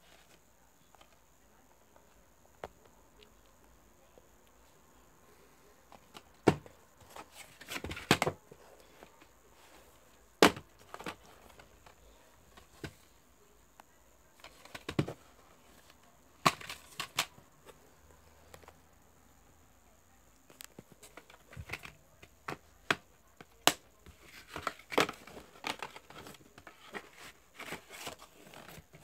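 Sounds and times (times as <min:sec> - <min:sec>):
plastic cases clicking and snapping: 0:14.4 - 0:15.2, 0:16.4 - 0:17.4, 0:20.5 - 0:29.0.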